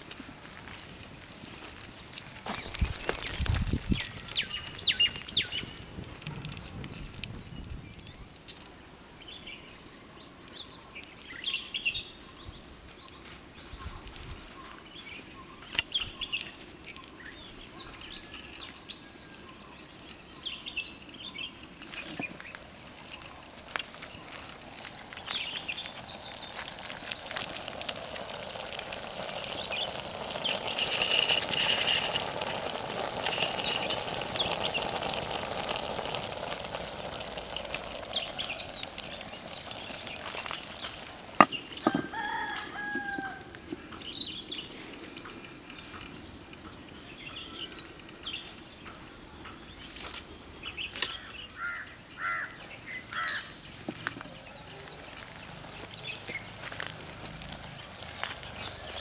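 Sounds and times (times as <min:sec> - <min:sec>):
wood fire crackling: 0:00.0 - 0:08.7, 0:19.5 - 0:48.1, 0:53.1 - 0:59.0
steady hiss: 0:00.0 - 0:59.0.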